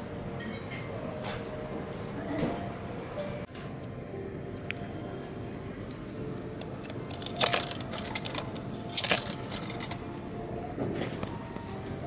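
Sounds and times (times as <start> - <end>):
coins clattering in vending machine: 6.8 - 10.2.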